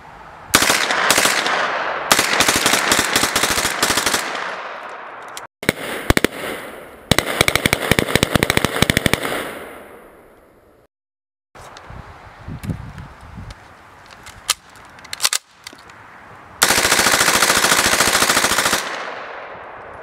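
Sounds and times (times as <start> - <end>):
submachine gun firing bursts: 0.6 - 4.6, 5.6 - 9.7, 16.6 - 19.3.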